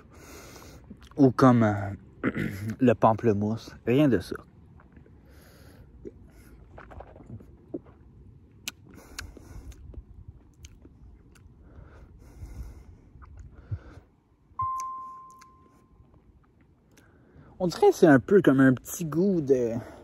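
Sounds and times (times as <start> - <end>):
clear ringing tone: 14.6 - 16.1.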